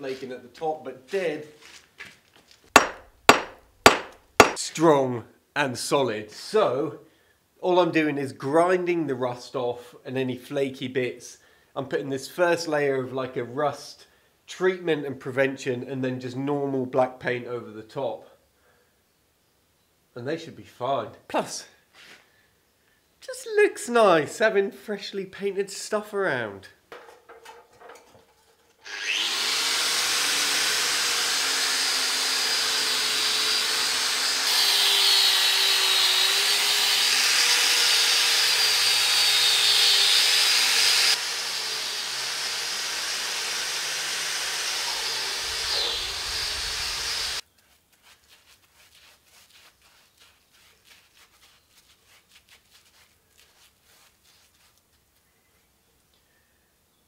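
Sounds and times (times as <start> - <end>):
angle grinder grinding metal: 2.8 - 4.6, 27.0 - 47.4.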